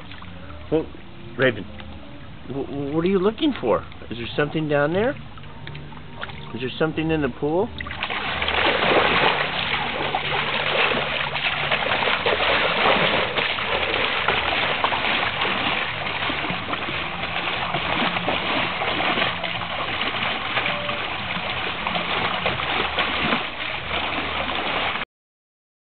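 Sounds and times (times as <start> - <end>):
dog splashing in water: 7.8 - 25.0.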